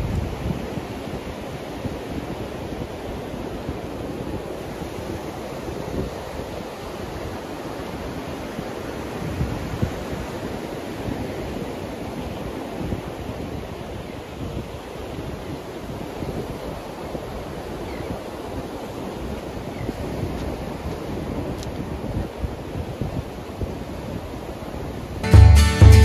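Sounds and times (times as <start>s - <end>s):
wind buffeting microphone: 0.0s - 25.0s
surf breaking on beach: 0.0s - 25.2s.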